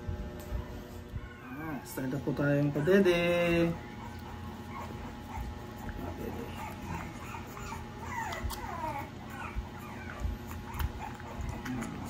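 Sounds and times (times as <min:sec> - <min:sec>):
puppy whimpering: 0:00.5 - 0:12.0.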